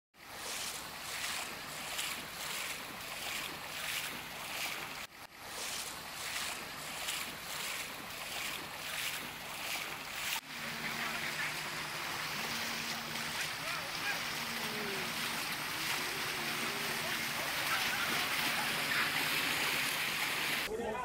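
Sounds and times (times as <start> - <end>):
wading through floodwater: 0.2 - 20.7.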